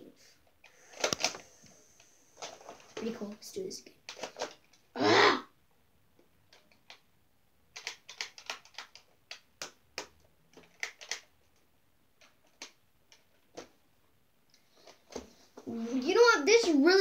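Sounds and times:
toy blaster plastic clicks and rattles: 0.9 - 1.4, 4.1 - 4.8, 10.6 - 11.3.

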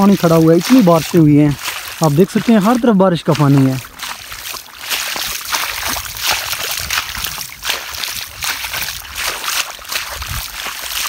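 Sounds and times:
wading through splashing water: 0.0 - 11.0.

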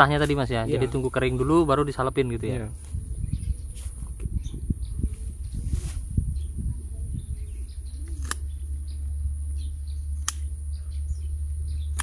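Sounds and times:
small birds chirping: 0.0 - 12.0
pruning shears snipping branches: 8.1 - 8.6, 10.2 - 10.5.

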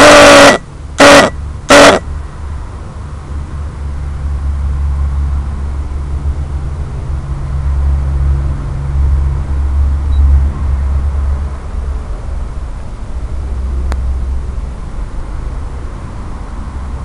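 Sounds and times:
quadcopter propeller noise: 0.0 - 2.0
wind: 0.0 - 17.0.

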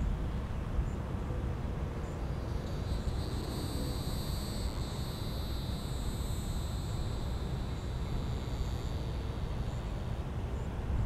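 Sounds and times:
cicada high buzz: 2.2 - 10.4.

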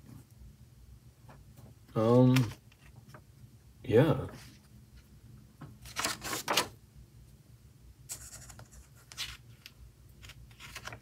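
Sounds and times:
paper page turning: 5.8 - 6.7, 8.1 - 11.0.

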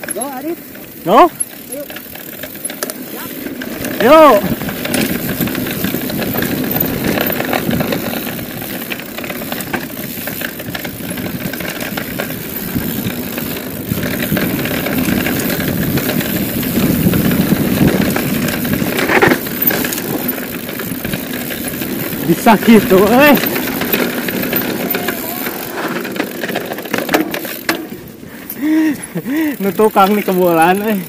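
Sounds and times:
bike clatter: 0.0 - 31.0
bike rattling: 0.0 - 31.0
bike tyres rolling on dirt: 0.0 - 31.0
wind rushing over microphone: 3.7 - 8.9, 9.8 - 26.2.

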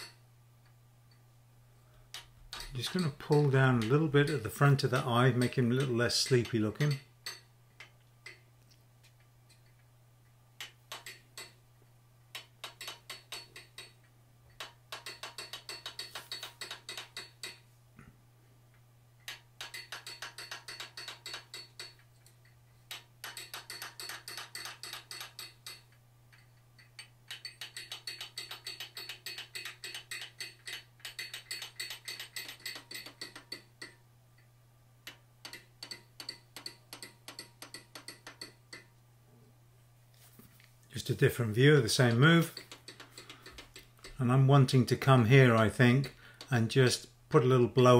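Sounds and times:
steady low hum: 0.0 - 15.0
hammer striking metal tool: 2.1 - 7.5.

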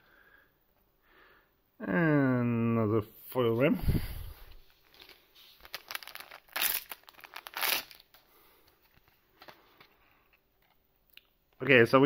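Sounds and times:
cards being handled: 4.6 - 10.0
foil wrappers crinkling: 4.8 - 8.2.

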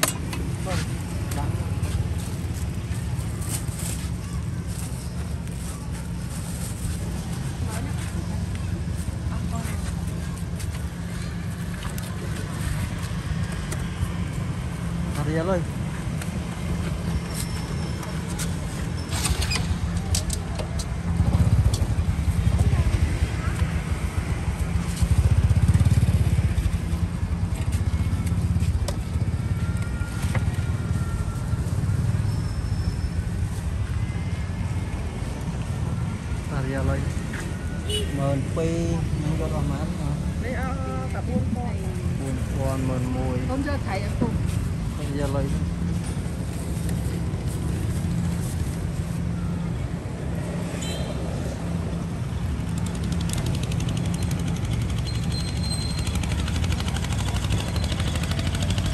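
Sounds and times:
street noise: 0.0 - 58.9
small engine chugging: 52.6 - 58.9.

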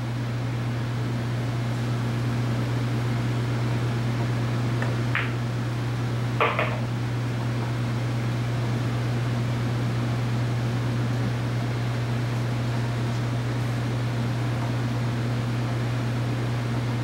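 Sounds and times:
cue tip tapping ball: 5.1 - 5.4, 6.4 - 6.9
billiard balls clacking: 5.2 - 5.4, 6.4 - 6.9.

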